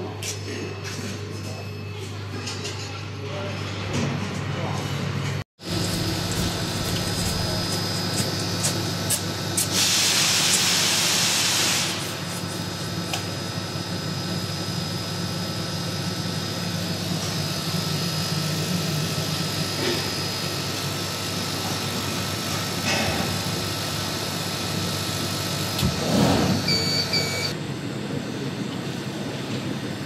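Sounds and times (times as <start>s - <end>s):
laser cutting machine hum: 5.0s - 30.0s
gas hissing: 5.7s - 12.2s.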